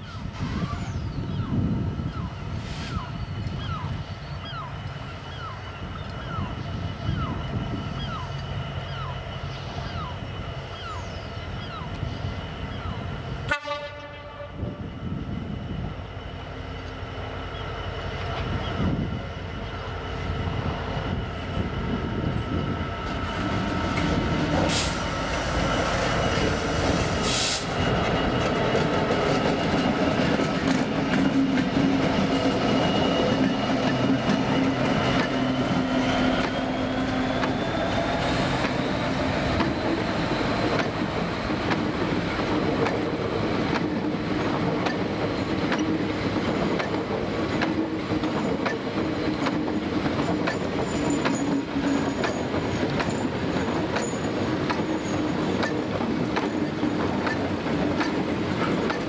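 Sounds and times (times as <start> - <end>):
diesel locomotive engine running: 0.2 - 59.0
wagon wheels clickety-clack: 44.8 - 59.0
wheel squeal: 50.2 - 55.8.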